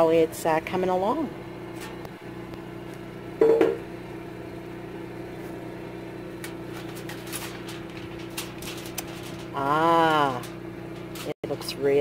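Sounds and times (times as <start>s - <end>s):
steady hum: 0.0s - 12.0s
aluminium foil crinkling: 6.3s - 11.8s.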